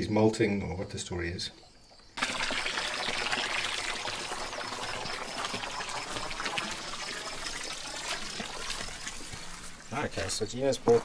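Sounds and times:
water trickling into a tank: 2.0s - 10.4s.

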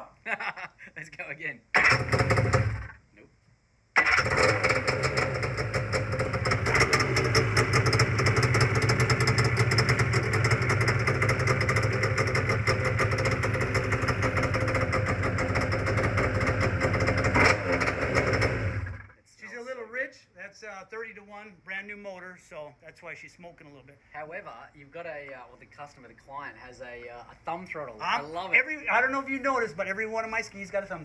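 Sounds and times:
two-stroke engine idling: 4.0s - 19.1s.

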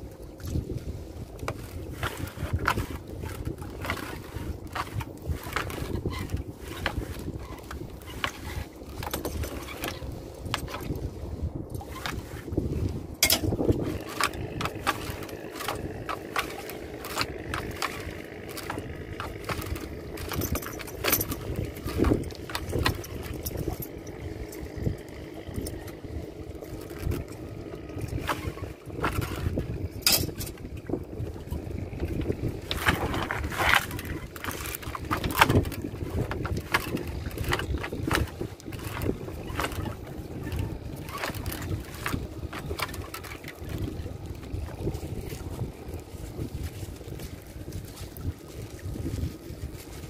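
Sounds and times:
boat engine hum: 0.0s - 50.0s
knocks and clatter: 13.2s - 25.7s.

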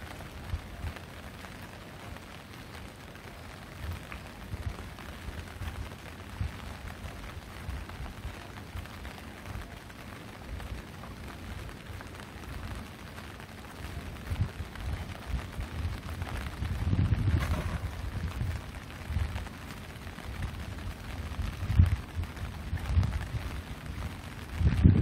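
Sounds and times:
light rain falling: 0.0s - 25.0s
low thumps on microphone: 16.6s - 19.4s.

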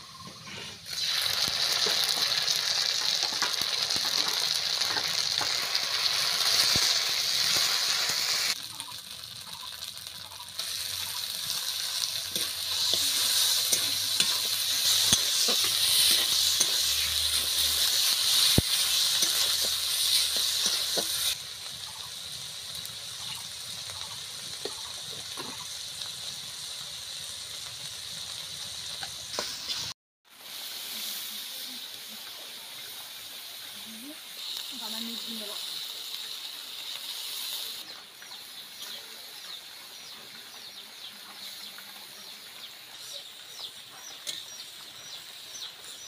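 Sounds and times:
spatula scraping a wok: 0.2s - 2.4s, 9.8s - 21.4s
meat sizzling in hot oil: 0.8s - 46.0s.

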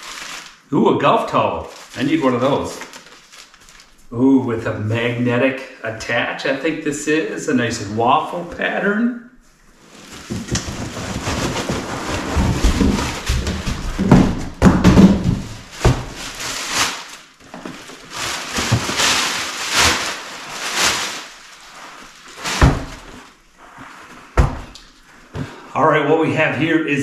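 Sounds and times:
plastic wrapping crinkling: 0.0s - 0.7s, 1.5s - 4.1s, 9.8s - 25.4s
cardboard box rustling and scraping: 9.9s - 14.4s
dull thumps: 10.2s - 16.4s, 24.4s - 25.6s.

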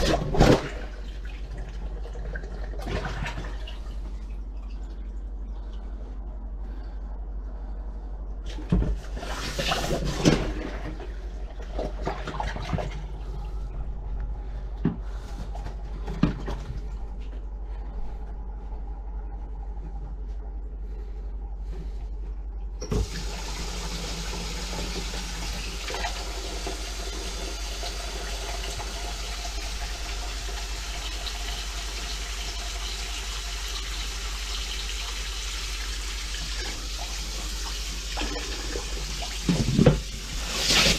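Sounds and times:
plunger splashing and sucking: 9.0s - 13.5s, 34.7s - 40.9s
tap water running into sink: 22.8s - 40.9s.

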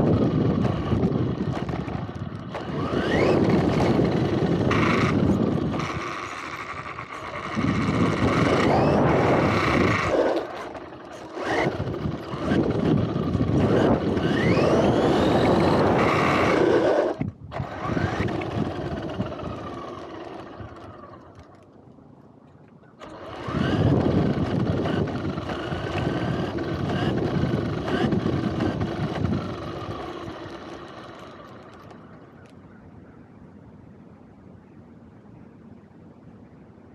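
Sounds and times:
tyres rumbling on concrete: 0.0s - 21.1s
rc car motor whine: 0.0s - 21.8s, 23.0s - 32.6s
chassis rattle: 0.0s - 22.0s, 23.0s - 32.6s.

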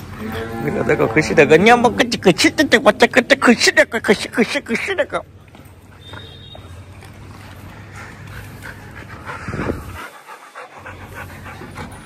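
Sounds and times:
dog panting: 7.3s - 12.0s.

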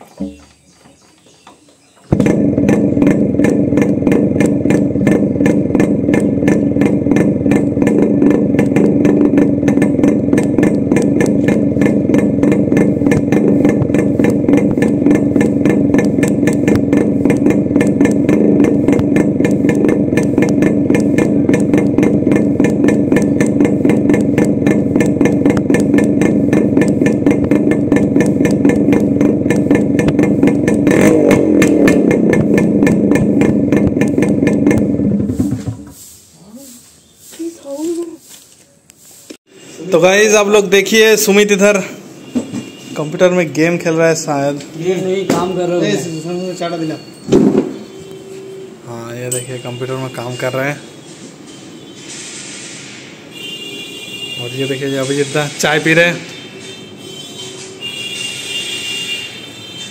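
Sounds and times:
loud two-stroke motorcycle engine: 2.1s - 35.8s.

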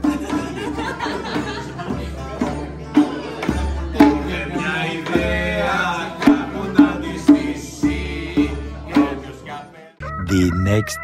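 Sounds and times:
song with singing voice and beat: 4.5s - 11.0s.

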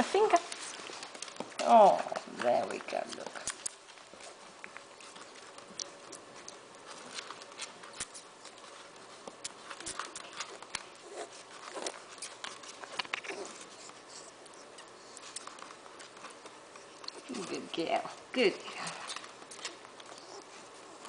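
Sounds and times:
piglet sucking wet smacking: 3.4s - 17.3s.

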